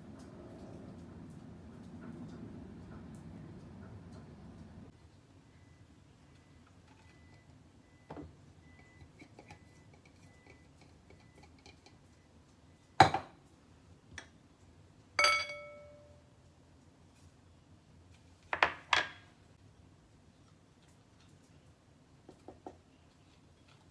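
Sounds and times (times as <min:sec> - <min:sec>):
glass clinking against glass bowl: 0:15.2 - 0:16.2.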